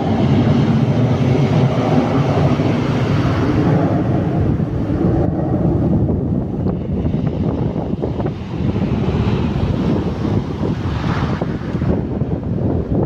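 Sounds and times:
jet airliner flying overhead: 0.0s - 13.0s.

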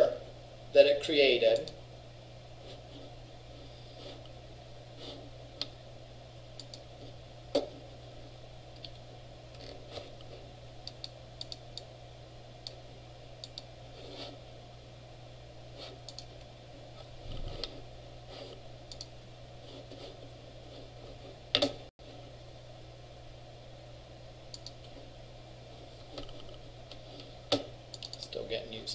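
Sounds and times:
low electrical hum: 0.0s - 28.9s
computer mouse and key clicks: 6.6s - 6.9s, 10.8s - 11.9s, 13.4s - 13.7s, 16.0s - 16.3s, 18.9s - 19.1s, 24.5s - 24.9s, 27.5s - 28.3s.

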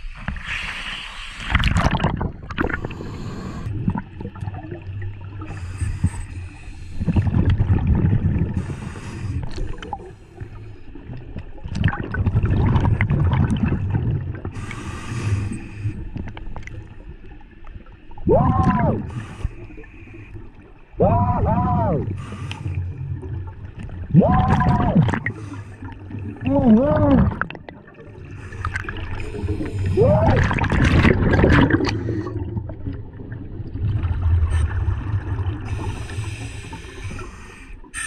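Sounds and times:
regulator inhale hiss: 0.3s - 1.6s, 2.8s - 3.7s, 5.5s - 7.1s, 8.6s - 10.9s, 14.6s - 16.1s, 19.1s - 20.4s, 22.2s - 22.9s, 25.3s - 26.0s, 35.7s - 38.0s
exhaled bubbles rushing: 1.4s - 6.2s, 7.0s - 8.9s, 11.0s - 14.6s, 18.1s - 19.4s, 21.0s - 36.9s.

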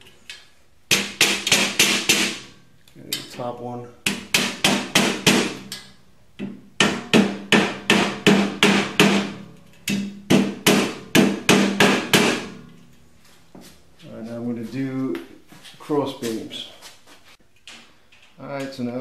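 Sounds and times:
rubber mallet striking steel: 0.9s - 2.5s, 4.1s - 5.8s, 6.4s - 12.6s.

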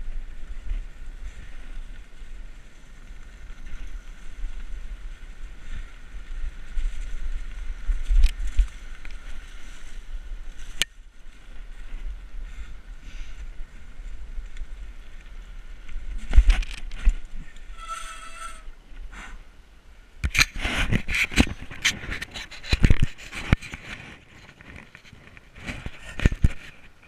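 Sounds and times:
high squeal: 17.7s - 18.7s.

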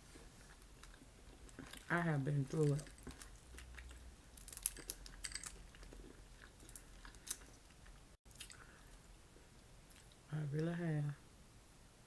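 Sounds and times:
chewing: 0.4s - 2.0s, 2.6s - 9.0s, 9.8s - 10.2s.

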